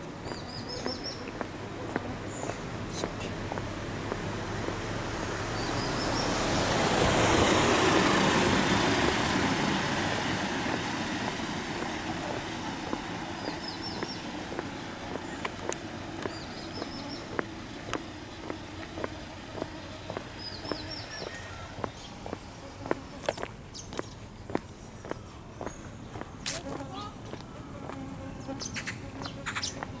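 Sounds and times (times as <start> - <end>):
bird chirping: 0.0 - 1.4, 13.3 - 19.1, 19.7 - 27.6, 28.3 - 30.0
footsteps on paving: 0.0 - 6.2, 10.4 - 30.0
van driving past: 0.0 - 25.1.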